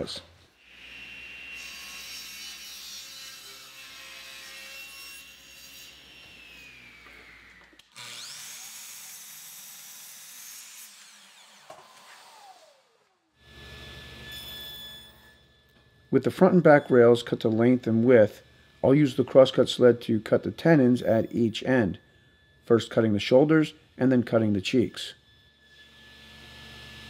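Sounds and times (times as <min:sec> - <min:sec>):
table saw cutting wood: 0:00.6 - 0:27.0
saw blade spinning down: 0:05.9 - 0:16.9.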